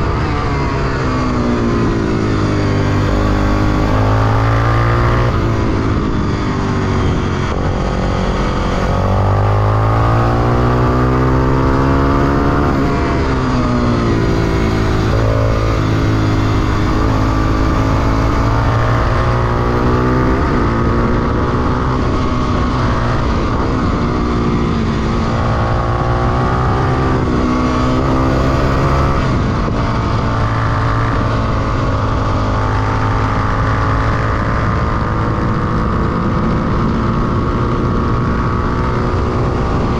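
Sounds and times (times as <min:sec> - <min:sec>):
motorcycle engine shifting gears: 0:00.0 - 0:39.9.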